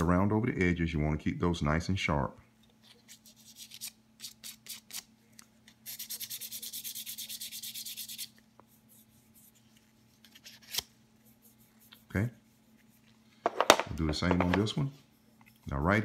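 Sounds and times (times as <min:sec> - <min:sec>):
sandpaper sanding wood: 0:05.8 - 0:09.6.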